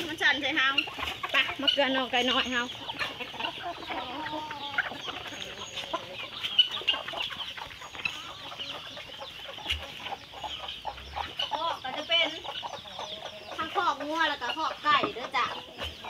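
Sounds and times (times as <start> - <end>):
chickens clucking: 0.0 - 16.0.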